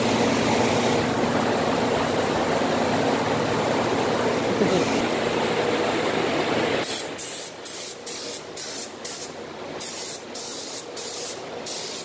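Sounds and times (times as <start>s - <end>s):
steady machine hum: 0.0s - 12.0s
spray gun hissing bursts: 6.8s - 12.0s.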